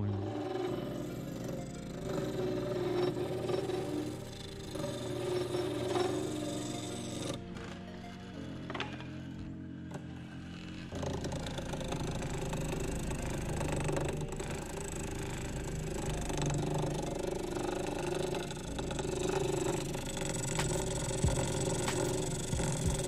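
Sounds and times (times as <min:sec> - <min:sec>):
gouge cutting on a lathe: 0:00.0 - 0:09.0, 0:10.9 - 0:23.0
lathe motor: 0:00.0 - 0:23.0.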